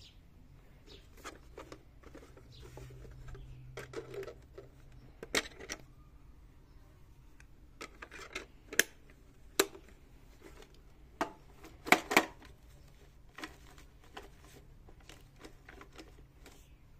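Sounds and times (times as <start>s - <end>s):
plastic toy clicks and knocks: 1.2s - 5.9s, 7.8s - 9.9s, 10.6s - 12.5s.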